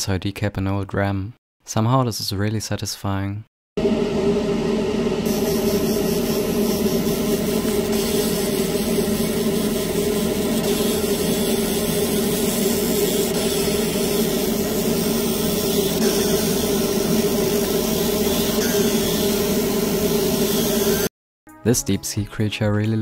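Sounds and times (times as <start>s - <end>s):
laser engraving machine drone: 3.8s - 21.1s.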